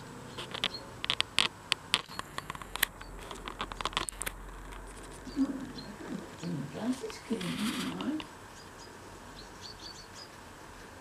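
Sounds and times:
sharp clicks and scratches: 0.3 - 5.6, 6.4 - 8.3.

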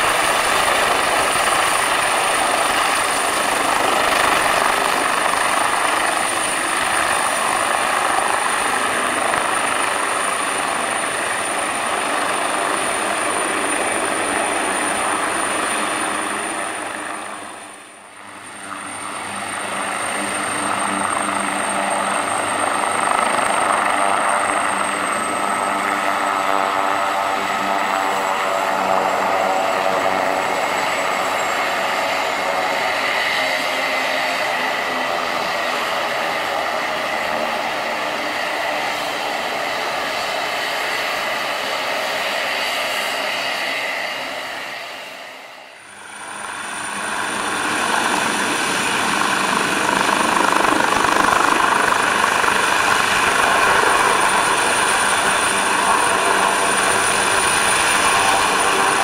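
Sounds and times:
helicopter rotor noise: 0.0 - 59.0
helicopter turbine whine: 0.0 - 59.0.

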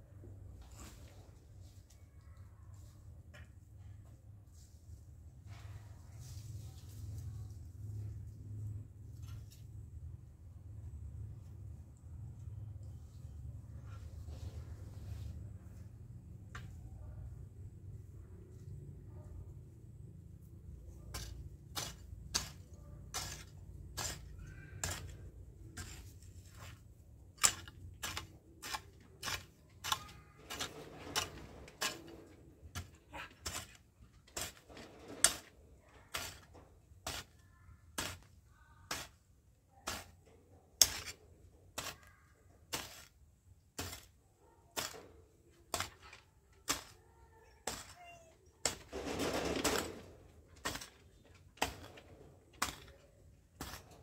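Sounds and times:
scraping rustle: 21.0 - 38.3, 44.8 - 54.0
garden hoe chopping dry soil: 21.1 - 40.2, 40.8 - 44.2, 44.8 - 47.0, 47.6 - 48.0, 48.6 - 54.0.

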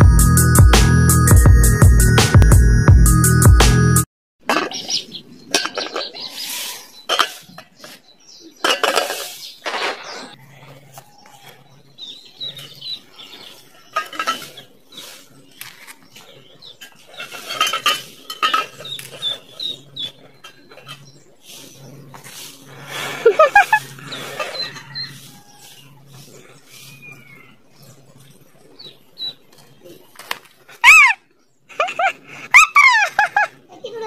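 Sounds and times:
hen clucking: 16.1 - 27.8.

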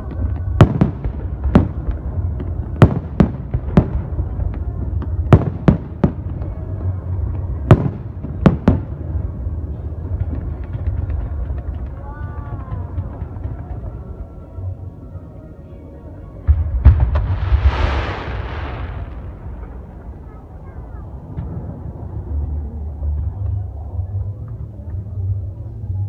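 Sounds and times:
steady low rumble: 16.4 - 26.0.

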